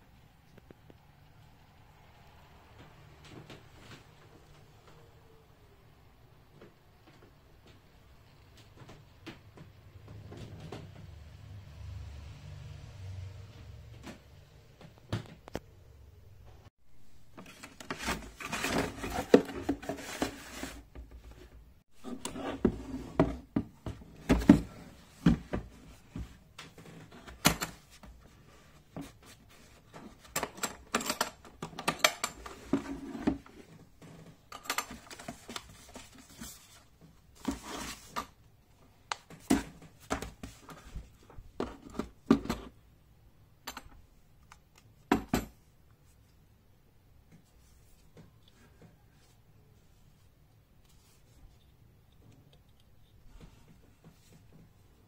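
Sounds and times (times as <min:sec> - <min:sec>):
box and case rustling: 0:17.2 - 0:38.4.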